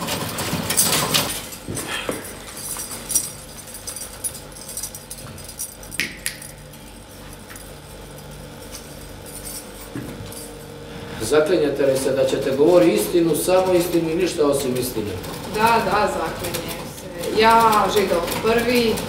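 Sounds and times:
knocks and clinks of props: 0:00.0 - 0:10.8.

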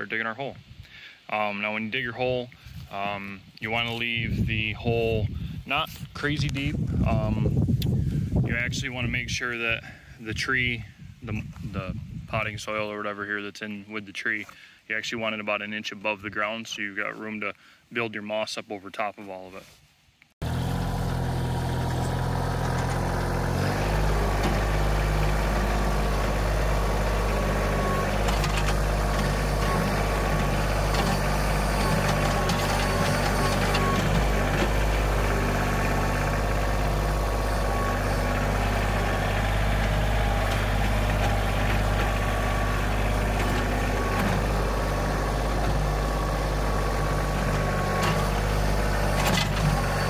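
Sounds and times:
diesel tractor engine running: 0:20.4 - 0:50.0.

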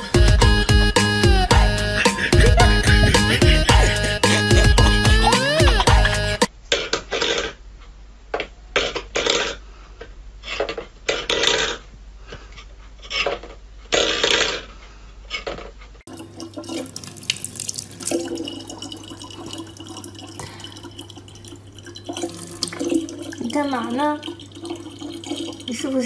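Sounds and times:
tap water running into bottle: 0:16.1 - 0:26.0.

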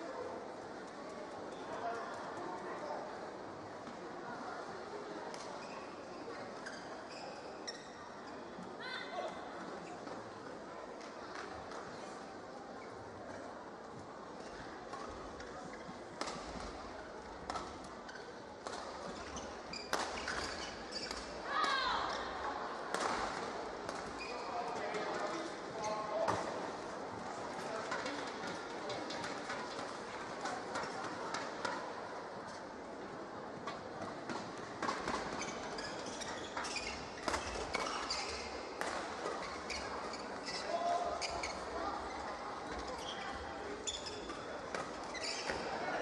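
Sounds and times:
shoe squeak: 0:06.6 - 0:08.0, 0:19.1 - 0:21.3, 0:24.2 - 0:24.6, 0:35.4 - 0:38.6, 0:39.4 - 0:44.4, 0:45.0 - 0:45.8.

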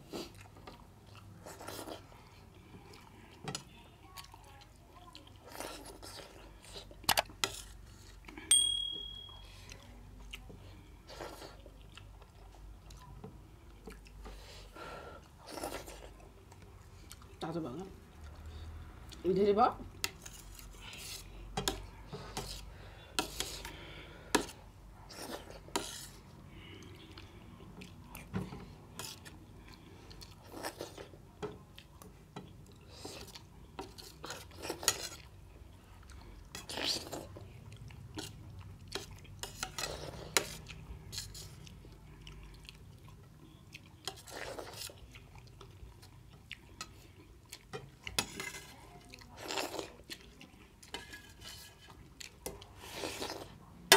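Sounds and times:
person chewing: 0:00.0 - 0:08.5, 0:09.6 - 0:13.1, 0:13.7 - 0:17.5, 0:19.9 - 0:51.3, 0:51.9 - 0:53.7
spoon clinking on metal plate: 0:08.5 - 0:09.5.

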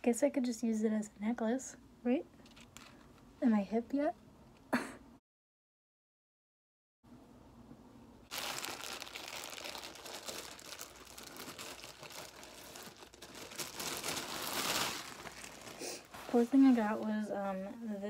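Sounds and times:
plastic packaging crinkling: 0:08.3 - 0:17.1.

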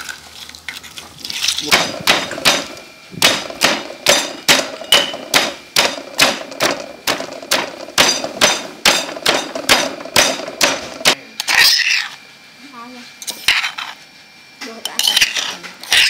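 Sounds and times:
stone pestle pounding in mortar: 0:01.7 - 0:11.2.

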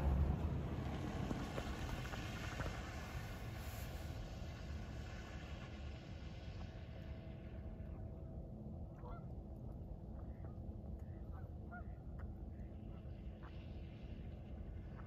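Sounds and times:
steady low rumble: 0:00.0 - 0:15.0
waterfowl calling: 0:11.1 - 0:12.0.

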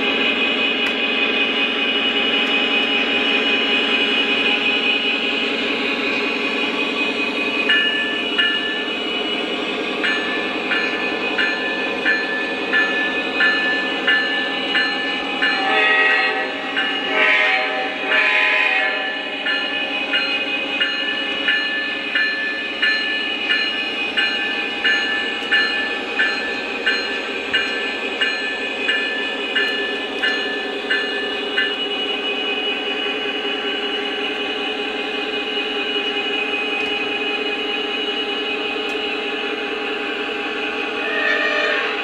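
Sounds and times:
locomotive bell ringing: 0:00.0 - 0:42.0
horn blast: 0:17.1 - 0:19.1.

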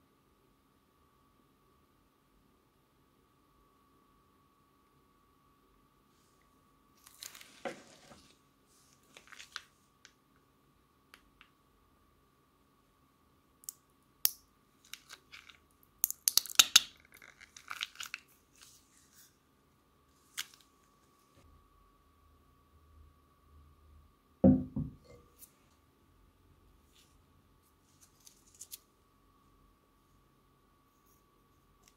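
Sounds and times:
faint hum: 0:00.0 - 0:07.4, 0:18.3 - 0:31.9
plastic piping bag crinkling: 0:07.0 - 0:08.3, 0:09.0 - 0:10.1, 0:14.8 - 0:19.0.

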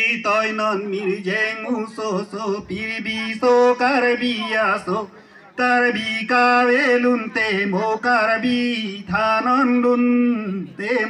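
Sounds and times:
man singing unaccompanied: 0:00.0 - 0:11.0.

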